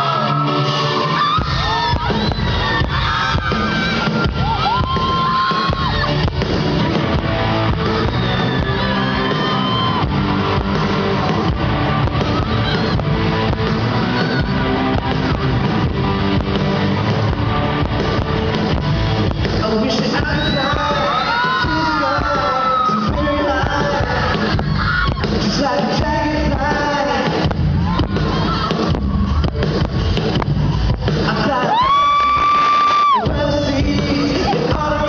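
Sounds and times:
live band with electric guitars: 0:00.0 - 0:35.0.

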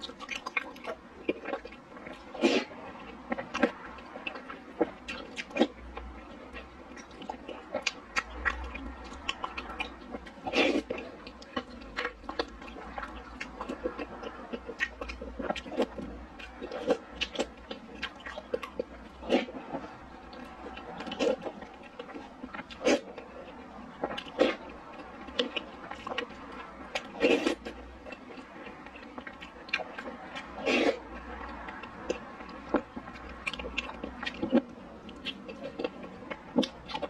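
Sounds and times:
chewing: 0:00.0 - 0:37.0
slurping soup: 0:02.2 - 0:02.9, 0:10.4 - 0:11.2, 0:19.2 - 0:20.0, 0:24.2 - 0:24.7, 0:27.0 - 0:27.8, 0:29.9 - 0:31.1.

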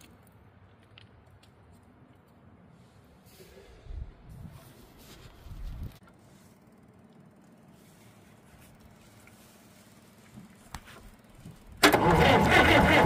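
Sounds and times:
diesel engine cranking: 0:11.2 - 0:13.0.

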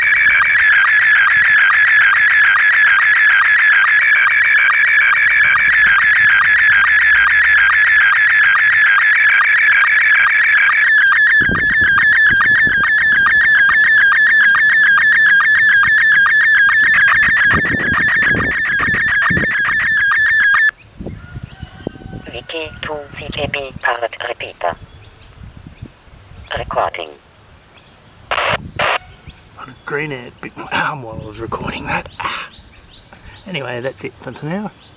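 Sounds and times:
warbling radio signal tones: 0:00.0 - 0:20.8, 0:22.3 - 0:24.8, 0:26.5 - 0:27.2, 0:28.3 - 0:32.0.

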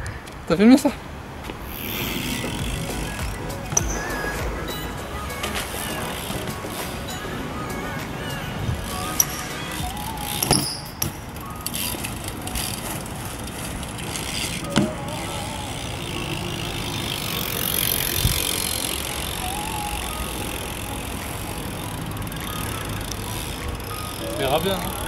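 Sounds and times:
bike tyres rolling on concrete: 0:00.1 - 0:25.0
bike landing on concrete: 0:01.4 - 0:04.7, 0:08.7 - 0:15.1.

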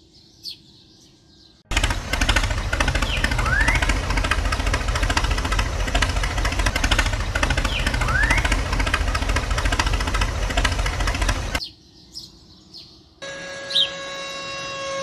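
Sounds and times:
bird-like chirps: 0:00.0 - 0:01.7, 0:07.6 - 0:08.6, 0:11.6 - 0:14.0
tractor engine knocking: 0:01.7 - 0:11.6.

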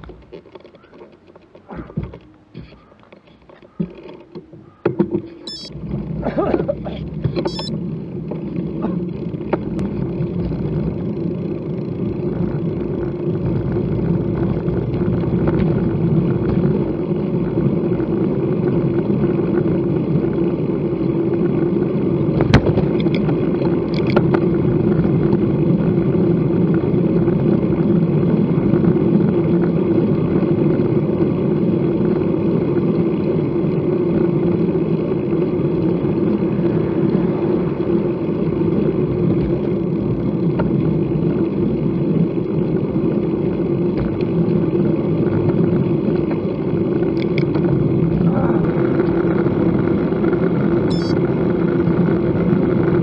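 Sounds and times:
bicycle tyre noise on road: 0:00.0 - 0:53.0.

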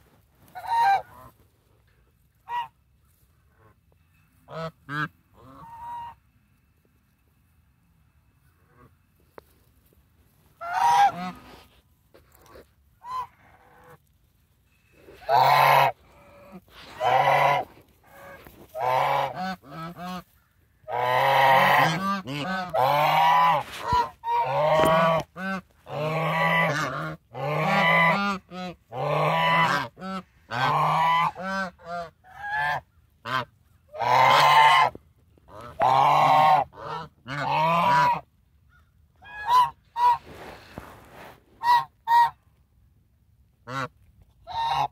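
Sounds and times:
geese honking: 0:00.4 - 0:01.5, 0:02.3 - 0:03.8, 0:04.4 - 0:06.4, 0:10.4 - 0:14.0, 0:15.0 - 0:40.5, 0:41.6 - 0:42.4, 0:44.5 - 0:44.9.

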